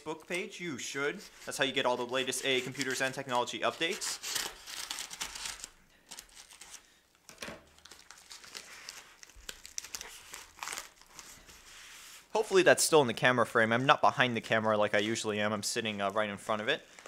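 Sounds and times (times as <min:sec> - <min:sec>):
paper crinkling and tearing: 0:00.0 - 0:06.9, 0:07.7 - 0:12.4.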